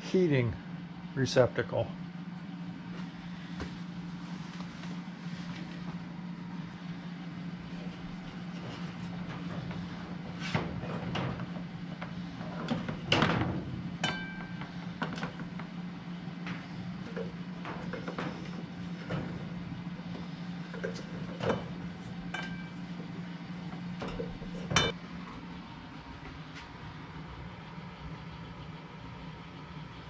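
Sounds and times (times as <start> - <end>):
steady low hum: 0.0 - 30.0
knocks and clinks on metal ductwork: 7.8 - 15.8, 16.4 - 23.1, 23.7 - 25.0.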